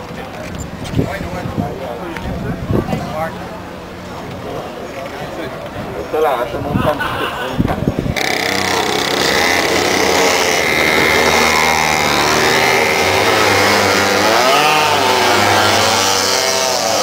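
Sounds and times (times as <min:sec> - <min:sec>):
go-kart engines buzzing: 0:00.0 - 0:17.0
go-kart engine revving: 0:08.1 - 0:17.0.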